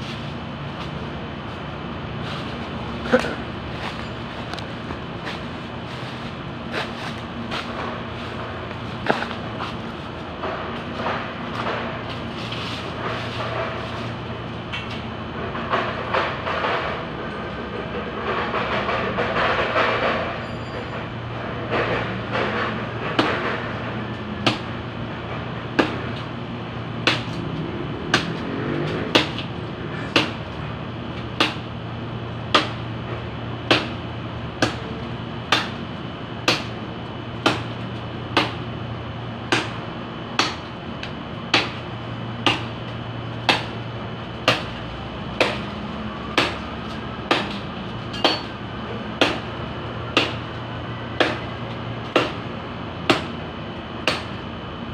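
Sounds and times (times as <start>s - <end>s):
blade chopping tree branch: 24.4s - 24.8s, 25.8s - 26.2s, 27.0s - 27.4s, 28.1s - 30.5s, 31.4s - 31.7s, 32.5s - 32.8s, 33.7s - 34.0s, 34.6s - 35.8s, 36.4s - 36.8s, 37.4s - 38.6s, 39.5s - 39.8s, 40.4s - 42.8s, 43.4s - 43.8s, 44.4s - 44.8s, 45.4s - 48.6s, 49.2s - 50.5s, 51.2s - 52.4s, 53.1s - 53.4s, 54.0s - 54.4s.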